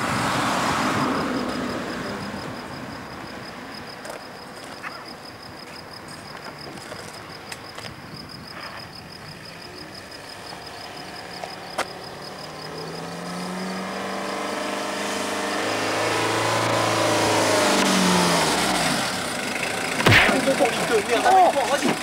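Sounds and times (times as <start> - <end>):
van engine approaching: 0.0 - 22.0
sharp click: 20.0 - 20.6.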